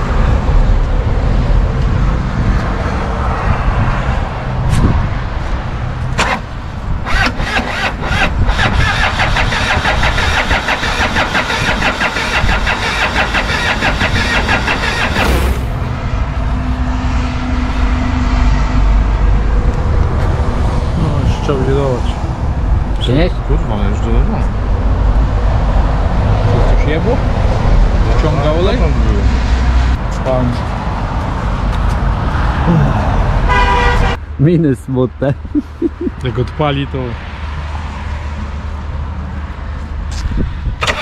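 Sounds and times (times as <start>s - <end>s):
diesel engine starting and running: 6.0s - 20.6s, 40.6s - 41.0s
rapid engine clatter: 6.1s - 16.0s.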